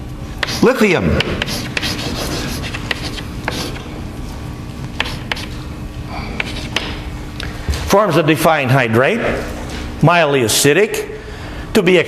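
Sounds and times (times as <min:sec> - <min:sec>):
room hum: 0:00.0 - 0:12.0
chalk tapping and scratching: 0:00.4 - 0:03.8, 0:05.0 - 0:05.6, 0:06.4 - 0:07.0.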